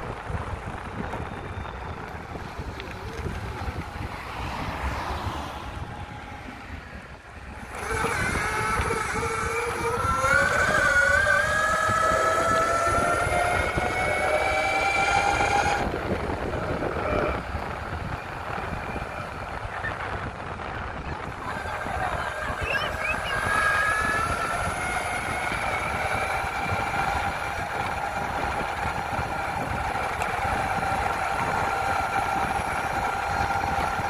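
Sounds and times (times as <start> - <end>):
wind on microphone: 0.0 - 34.0
electric motor whine: 7.4 - 34.0.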